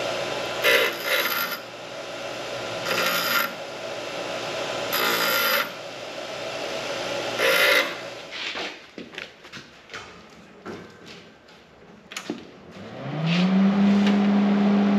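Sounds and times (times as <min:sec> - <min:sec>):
bench grinder running: 0:00.0 - 0:08.4, 0:12.8 - 0:14.9
metal grinding on wheel: 0:00.6 - 0:01.7, 0:02.8 - 0:03.6, 0:04.9 - 0:05.8, 0:07.4 - 0:08.1.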